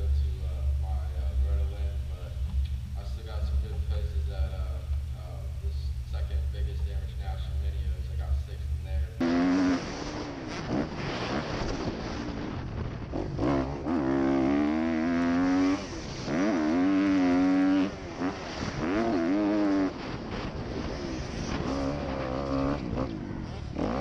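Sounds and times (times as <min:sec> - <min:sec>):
dirt bike engine revving: 0:09.1 - 0:24.0.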